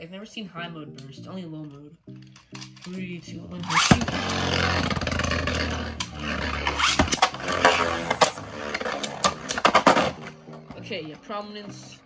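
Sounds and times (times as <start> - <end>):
spinning tops whirring scrape: 3.6 - 9.8.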